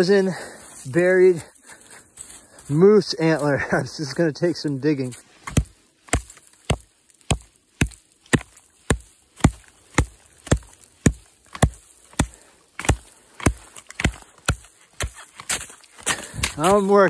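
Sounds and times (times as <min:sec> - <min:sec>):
axe chopping into icy snow: 0:05.4 - 0:17.0.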